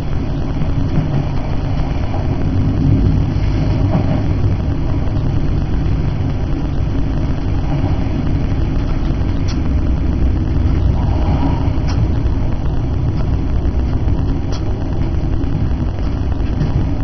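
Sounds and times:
diesel train rumbling in tunnel: 0:00.0 - 0:17.0.

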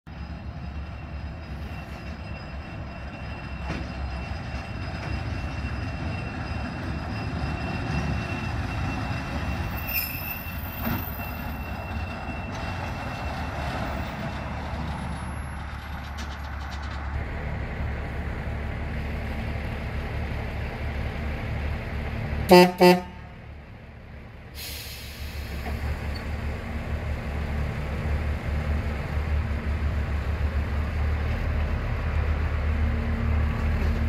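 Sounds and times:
high wheel squeal: 0:00.1 - 0:17.1
railcar rumbling along track: 0:00.1 - 0:34.0.

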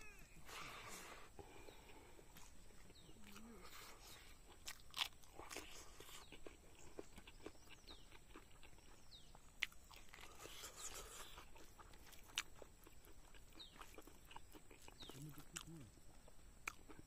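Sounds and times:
chewing and crunching: 0:00.0 - 0:17.0.

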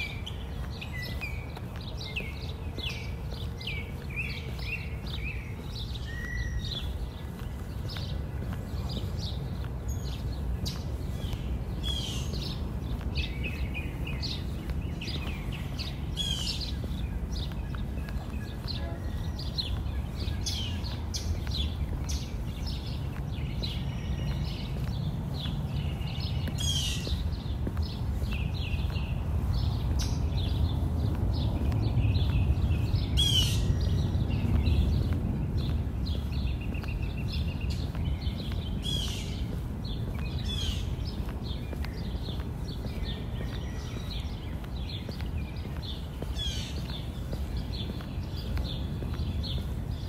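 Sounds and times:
birds chirping: 0:00.0 - 0:50.0.

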